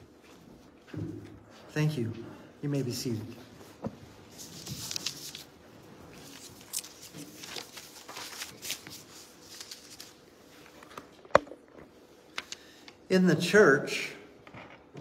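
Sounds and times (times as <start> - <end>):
paper rustling: 4.3 - 11.1.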